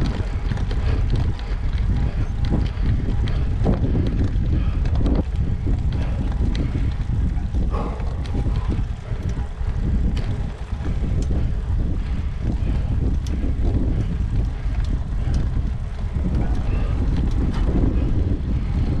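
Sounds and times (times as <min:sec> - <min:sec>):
light clicks from bicycle: 0:00.0 - 0:19.0
wind rumbling on microphone: 0:00.0 - 0:19.0.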